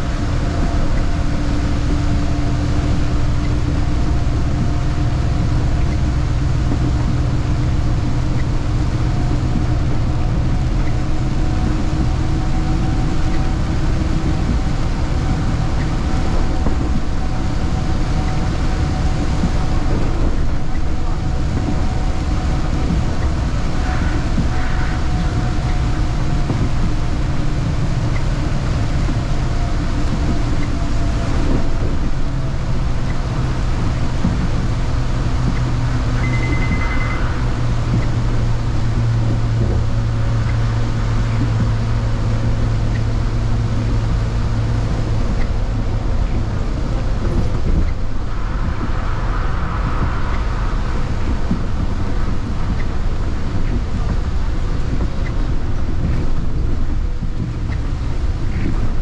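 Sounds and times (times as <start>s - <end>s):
bus engine drone: 0.0s - 59.0s
road and tyre rumble: 0.0s - 59.0s
high beep: 36.2s - 37.4s.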